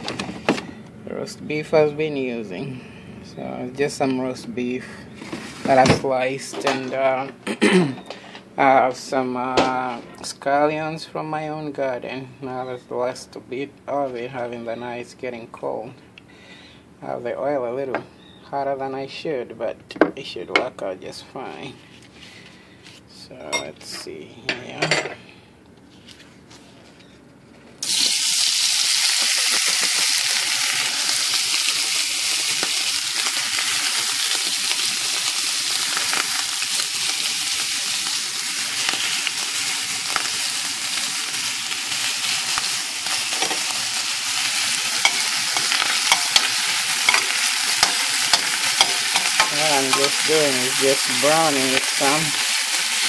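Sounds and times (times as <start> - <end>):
food sizzling in oil: 27.8 - 53.0
metal spoon scraping a pan: 45.0 - 50.2.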